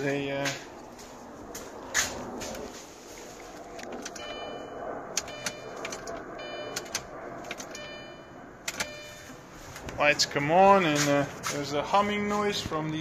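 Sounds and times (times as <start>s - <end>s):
sharp relay clicks: 5.1s - 7.9s, 8.6s - 9.0s.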